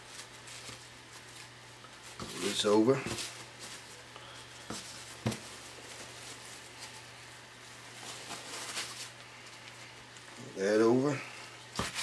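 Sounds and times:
plastic wrap crinkling: 0.0 - 10.4
low steady hum: 0.0 - 12.0.

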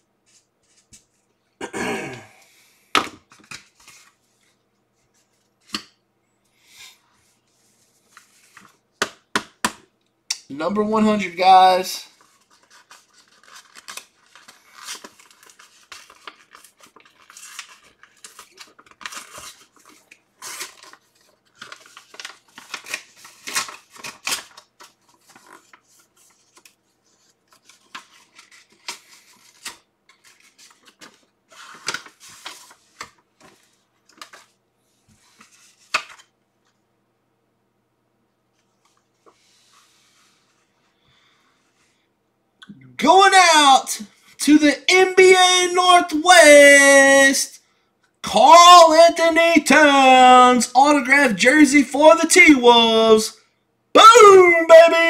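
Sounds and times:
paper rustling: 0.2 - 1.3, 7.2 - 8.8, 12.0 - 36.8
paper envelope tearing: 12.2 - 26.7.

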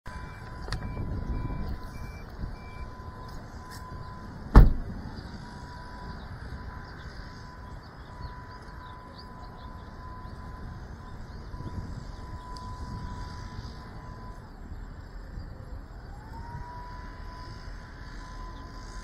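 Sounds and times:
short electronic beeps: 0.1 - 4.3
low rumble: 0.1 - 8.5
faint steady tone: 0.1 - 19.0
sharp knock: 4.6 - 4.8.

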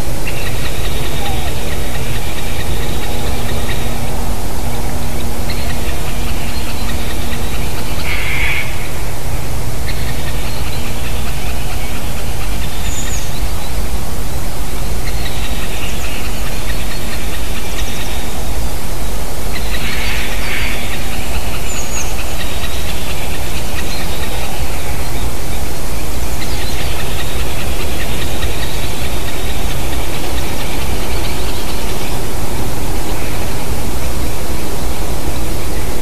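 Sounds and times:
loud rushing noise: 0.0 - 36.0
faint bird chirps: 0.2 - 9.0.

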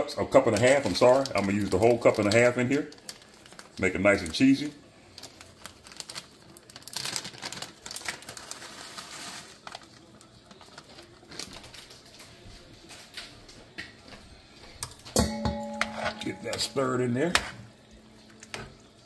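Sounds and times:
plastic bag crinkling: 0.2 - 13.0.

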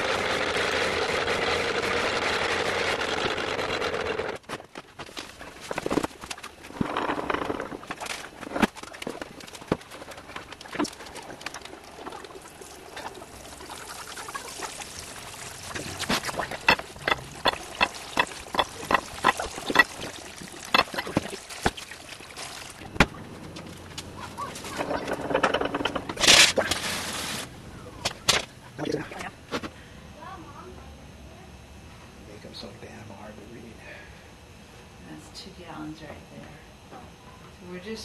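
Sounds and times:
liquid pouring: 11.0 - 23.0
wooden knocks: 16.1 - 20.0.

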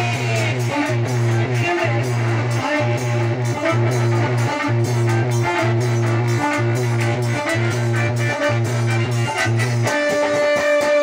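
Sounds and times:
instrumental folk music: 0.0 - 11.0.

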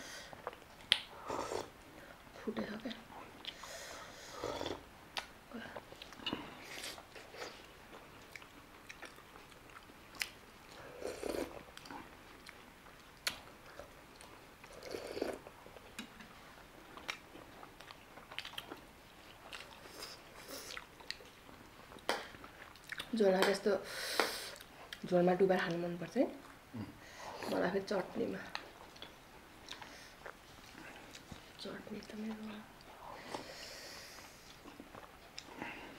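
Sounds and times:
wet mouth clicks and smacks: 0.5 - 1.1
chewing and biting food: 5.2 - 23.1, 34.2 - 35.7.

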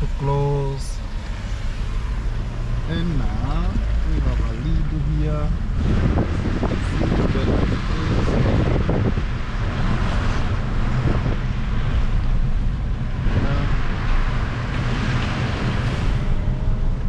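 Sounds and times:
car engine and tyre rumble: 0.0 - 17.0
tyres hissing on wet road: 5.8 - 16.6.

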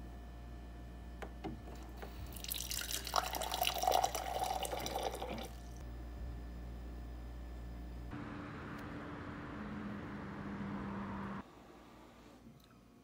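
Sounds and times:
hot water pouring into glass: 2.3 - 5.8.

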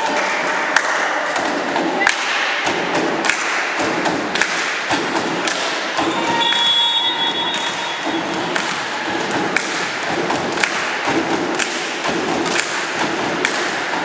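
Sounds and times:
rhythmic sharp beats: 0.0 - 14.0
murmur of voices: 4.9 - 11.5.

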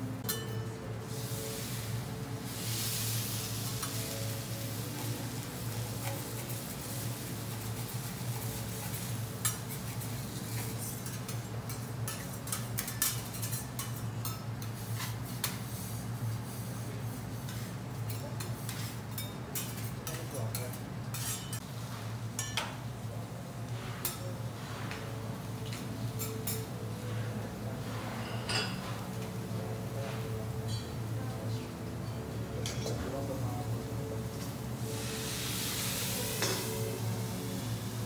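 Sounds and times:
metal spatulas clinking on griddle: 0.2 - 0.7, 8.8 - 14.8, 18.1 - 21.6, 22.4 - 22.8, 32.6 - 33.0.

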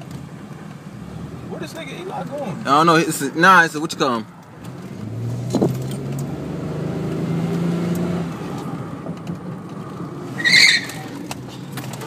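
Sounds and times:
car engine humming: 0.0 - 12.0
road noise inside car: 0.0 - 12.0
tire squeal: 10.3 - 11.4.

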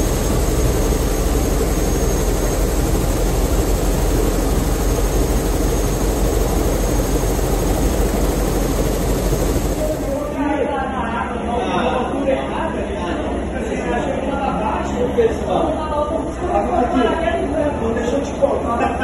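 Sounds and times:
helicopter engine and rotor noise: 0.0 - 10.5
high turbine whine: 0.0 - 11.4.

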